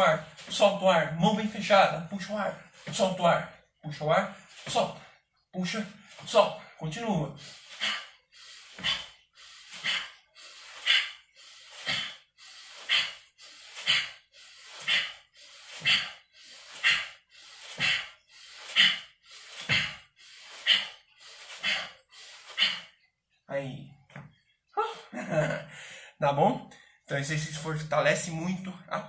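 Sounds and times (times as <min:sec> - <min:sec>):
man breathing forcefully: 0:05.9 - 0:23.1.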